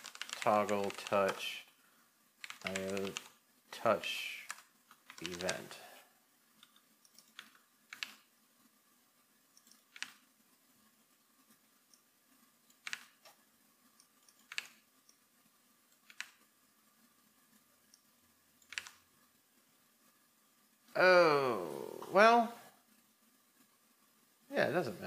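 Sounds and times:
computer keyboard key clicks: 0.0 - 1.2, 2.4 - 3.3, 6.6 - 8.2, 9.6 - 10.2, 12.7 - 13.2, 14.3 - 14.8, 16.0 - 16.4, 18.6 - 19.0.

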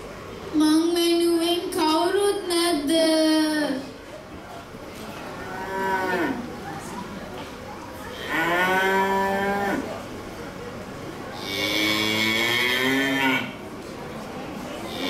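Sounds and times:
cow mooing: 5.4 - 6.5, 8.1 - 10.0, 11.4 - 13.6.

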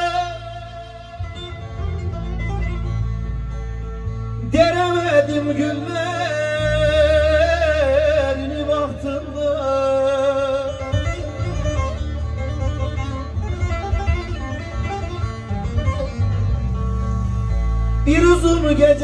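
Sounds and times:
man singing long notes: 0.0 - 2.0, 4.4 - 11.5, 18.0 - 19.0
saz playing folk song: 0.0 - 19.0
steady low bass: 0.0 - 19.0.

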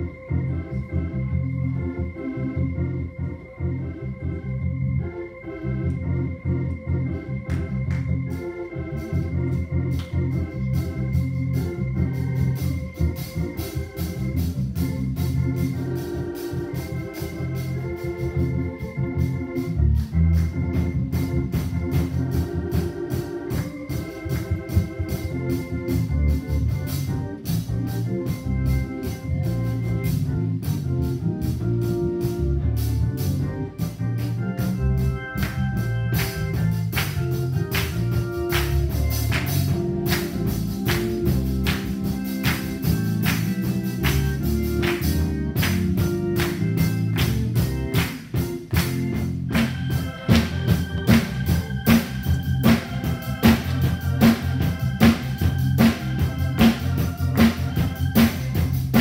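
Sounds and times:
bass line: 0.0 - 59.0
organ playing held chords: 0.0 - 59.0
sharp percussion beat: 36.2 - 59.0.

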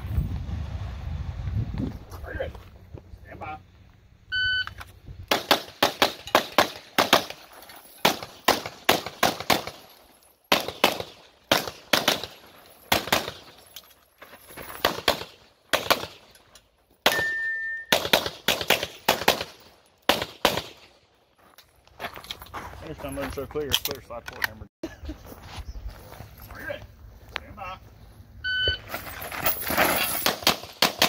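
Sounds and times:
steady beep: 4.3 - 4.8, 17.1 - 17.9, 28.4 - 28.9
rapid pistol fire: 5.3 - 7.4, 8.0 - 9.8, 10.5 - 13.4, 30.3 - 31.0.

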